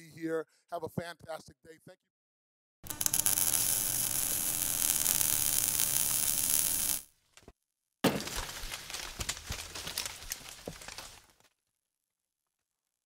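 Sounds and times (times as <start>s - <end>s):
scattered crackling: 2.8s - 7.1s.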